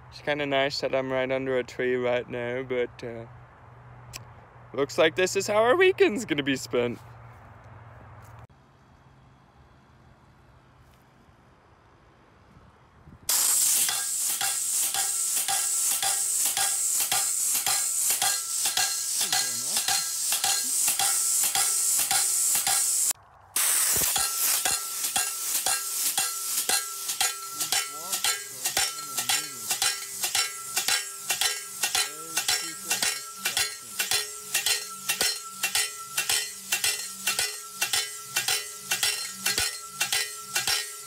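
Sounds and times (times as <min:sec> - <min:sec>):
steel post ringing: 0:13.3 - 0:23.1, 0:24.0 - 0:41.0
hiss of air: 0:13.3 - 0:41.0
pneumatic post pounder hammering: 0:13.3 - 0:41.0.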